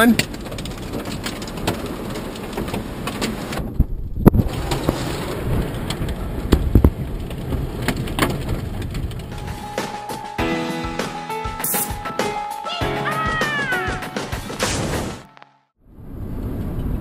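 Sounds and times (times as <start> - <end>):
rain and hail hitting a car: 0.0 - 10.4
road noise: 0.0 - 12.2, 13.3 - 17.0.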